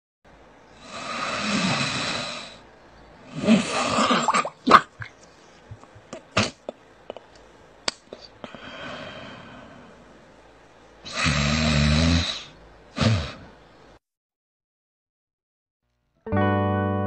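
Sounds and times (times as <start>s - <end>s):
seal breathing out through nostrils: 0.8s - 2.6s.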